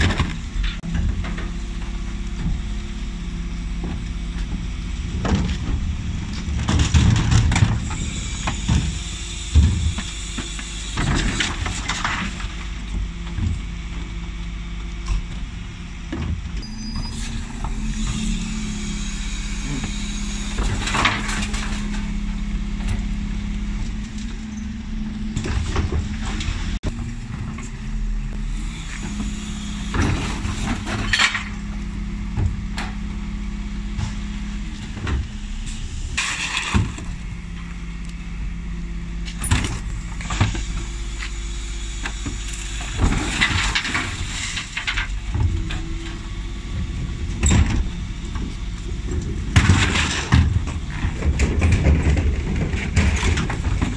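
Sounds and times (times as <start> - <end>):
lorry engine and hydraulics humming: 0.0 - 53.9
wheelie bins clattering and banging: 3.7 - 13.8, 19.4 - 27.7, 42.1 - 53.9.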